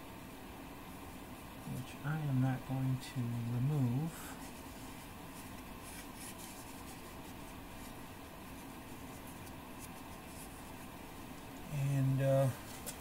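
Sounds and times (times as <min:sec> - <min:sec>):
cloth rag rubbing metal: 0:03.1 - 0:13.0.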